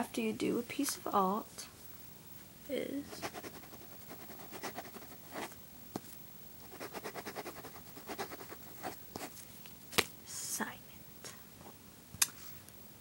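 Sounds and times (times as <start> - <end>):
pen writing on paper: 3.2 - 5.5, 6.7 - 9.0.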